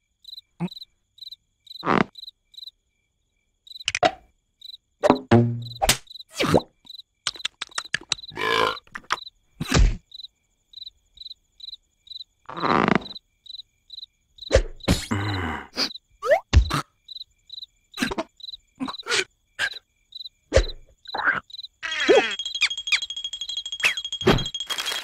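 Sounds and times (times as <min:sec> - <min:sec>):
crickets chirping: 0:00.0 - 0:25.0
cartoon thuds and squelches: 0:05.0 - 0:06.7, 0:07.3 - 0:10.0, 0:14.5 - 0:15.2, 0:16.2 - 0:16.9, 0:20.5 - 0:20.9.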